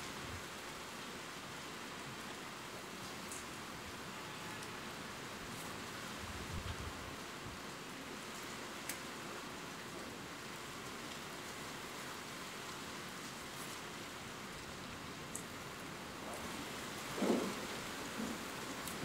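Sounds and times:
steady rain hiss: 0.0 - 19.0
single raindrop ticks: 15.3 - 15.5.

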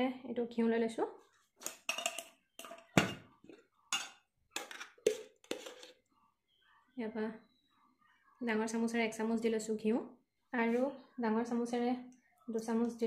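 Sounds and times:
spoon scraping metal tin: 1.6 - 6.0.

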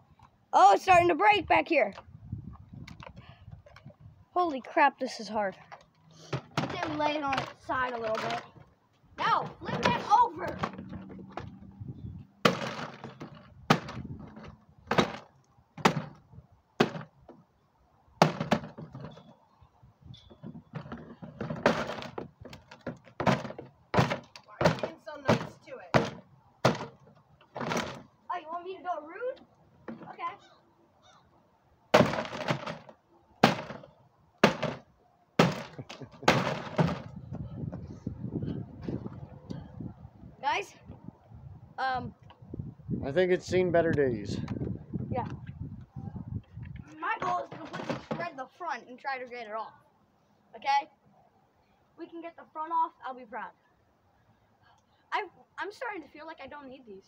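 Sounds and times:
sledgehammer hitting plastic can: 6.3 - 8.4, 9.4 - 11.5, 12.4 - 16.2, 16.8 - 17.1, 18.2 - 19.2, 20.5 - 28.1, 31.9 - 37.2, 47.2 - 48.3
sledgehammer striking toy in plastic can: 12.5 - 14.0, 18.2 - 18.8, 22.8 - 27.0, 32.0 - 33.8, 34.4 - 34.8, 35.4 - 37.1.

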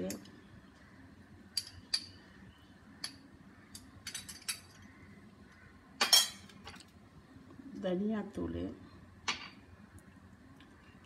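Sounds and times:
utensils clinking on steel vessels: 6.0 - 6.5.

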